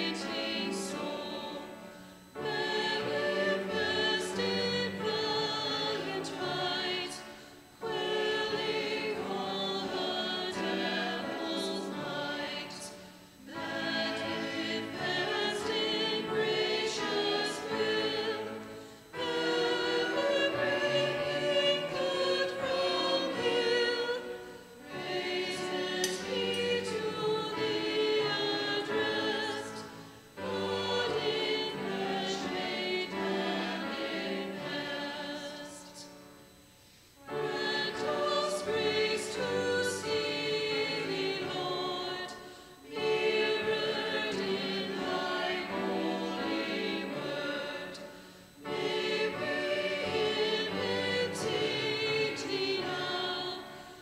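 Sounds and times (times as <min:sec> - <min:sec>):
choir singing a hymn: 0:00.0 - 0:54.0.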